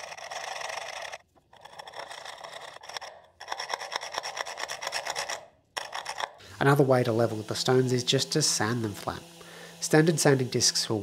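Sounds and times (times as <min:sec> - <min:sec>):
scraper rasping on stone inlay: 0:00.0 - 0:06.4.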